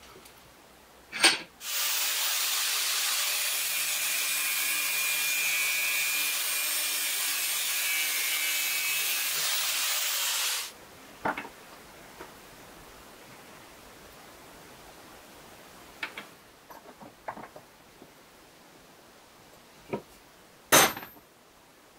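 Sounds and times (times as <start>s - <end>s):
angle grinder cutting metal: 1.6s - 10.7s.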